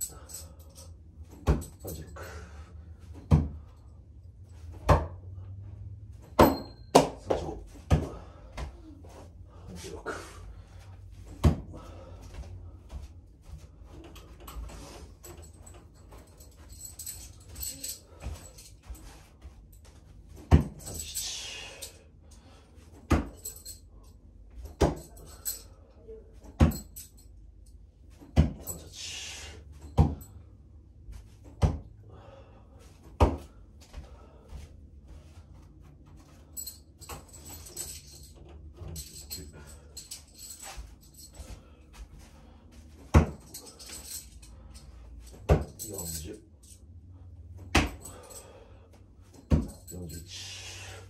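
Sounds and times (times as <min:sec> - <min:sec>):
steady low hum: 0:00.0 - 0:51.0
steel throwing spikes clinking: 0:06.2 - 0:07.9, 0:14.1 - 0:19.5, 0:20.3 - 0:22.0, 0:28.2 - 0:30.4, 0:42.8 - 0:46.9, 0:49.3 - 0:51.0.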